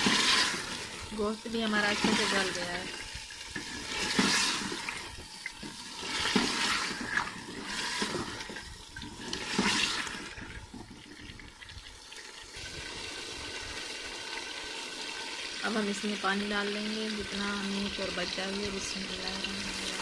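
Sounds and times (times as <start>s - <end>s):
meat and potatoes sizzling in a pot: 0.0s - 20.0s
wooden spoon stirring: 3.5s - 11.3s.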